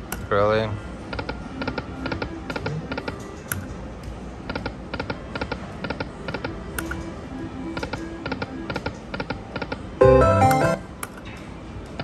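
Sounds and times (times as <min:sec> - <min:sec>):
short musical tones: 0:10.0 - 0:10.8.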